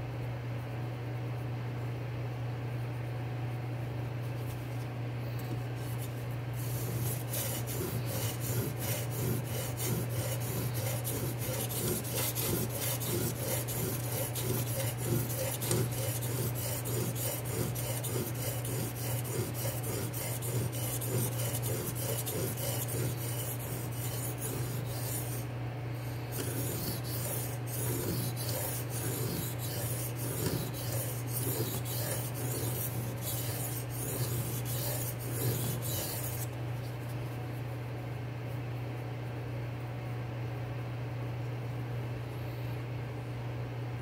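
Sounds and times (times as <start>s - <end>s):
knife scraping on stone: 5.4s - 37.0s.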